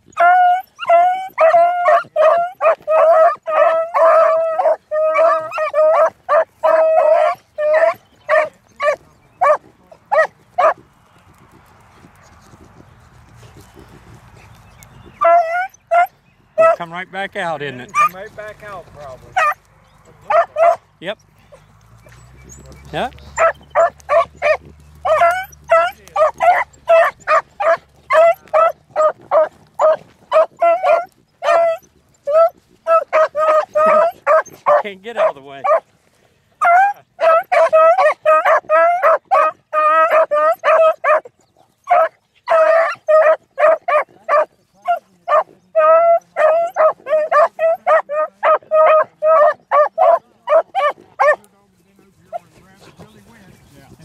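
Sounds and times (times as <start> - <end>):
dogs baying: 0.0 - 54.0.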